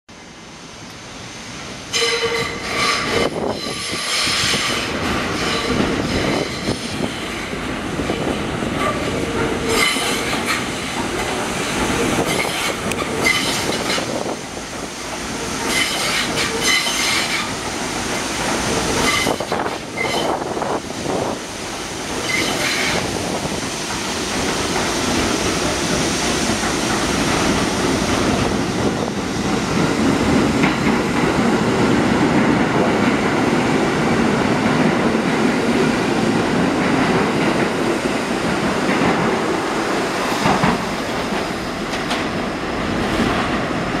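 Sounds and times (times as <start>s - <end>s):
train wheels rumbling on rail: 0.1s - 44.0s.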